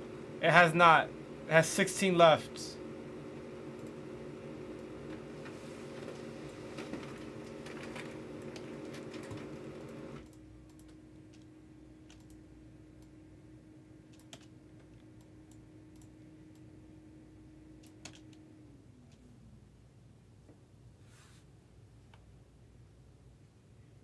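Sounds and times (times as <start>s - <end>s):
low hum: 2.7s - 20.3s
computer keyboard typing: 6.4s - 11.5s, 12.1s - 12.4s, 14.1s - 16.1s, 17.8s - 18.4s.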